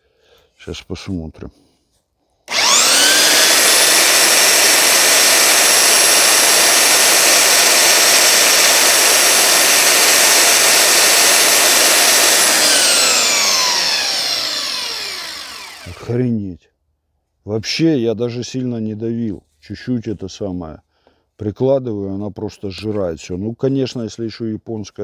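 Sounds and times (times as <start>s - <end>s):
belt sander whine: 2.5s - 16.1s
wood grinding on sander belt: 2.5s - 16.1s.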